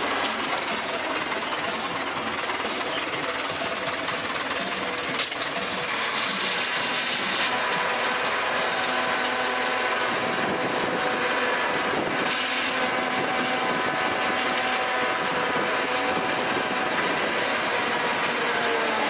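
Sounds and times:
tractor engine running under load: 0:00.0 - 0:19.0.

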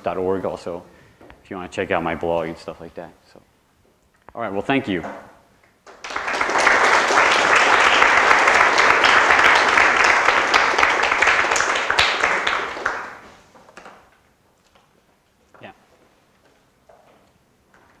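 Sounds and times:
audience applauding: 0:05.9 - 0:13.4.

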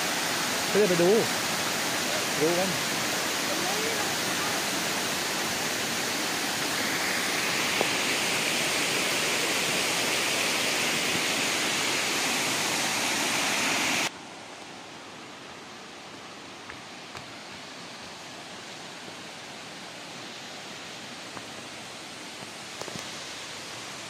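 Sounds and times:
waterfall rushing: 0:00.0 - 0:24.0.

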